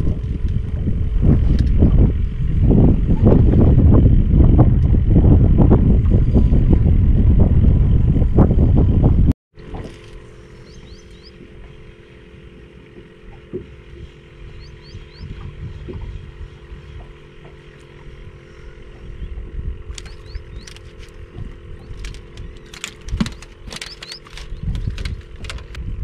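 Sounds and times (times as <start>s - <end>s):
motor hum: 0.0s - 26.0s
wind rumble on microphone: 0.0s - 26.0s
high rising bird chirps: 10.6s - 11.4s, 14.5s - 15.4s, 20.0s - 20.8s.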